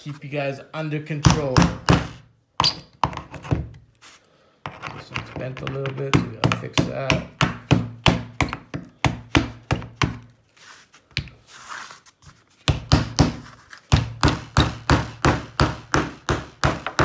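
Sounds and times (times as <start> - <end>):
hammer driving nail into wood: 1.3 - 3.6, 12.7 - 17.0.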